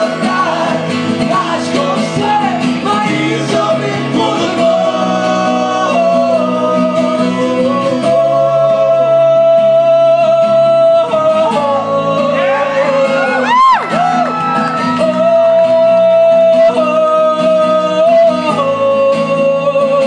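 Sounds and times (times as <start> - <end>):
acoustic guitars: 0.0 - 20.0
man singing long held notes: 0.0 - 20.0.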